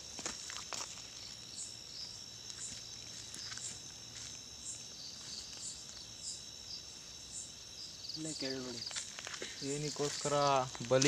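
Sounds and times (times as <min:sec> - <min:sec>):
insect chirps: 0:00.0 - 0:11.0
insects droning: 0:00.0 - 0:11.0.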